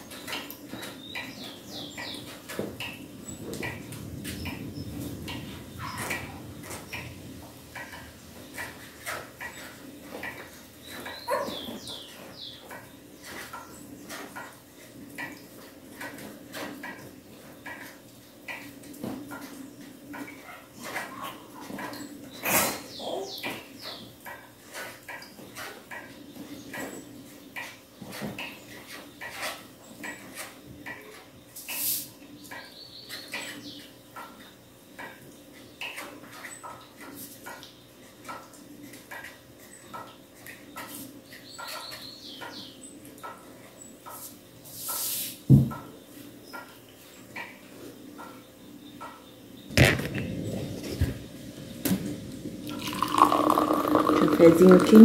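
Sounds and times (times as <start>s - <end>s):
coffee pouring into glass: 52.6s - 55.0s
thermos and glass clattering: 52.6s - 55.0s.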